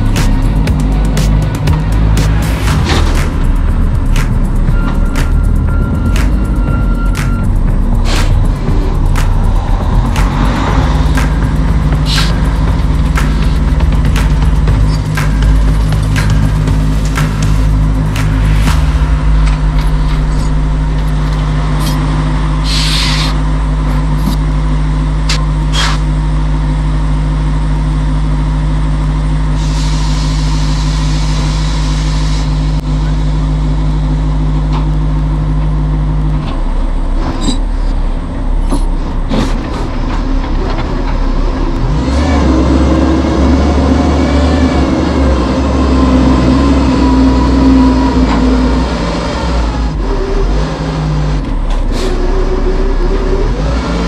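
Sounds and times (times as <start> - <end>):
diesel truck engine running: 0.0 - 54.0
compressed air hissing: 12.0 - 13.7, 22.6 - 23.5, 29.6 - 32.8.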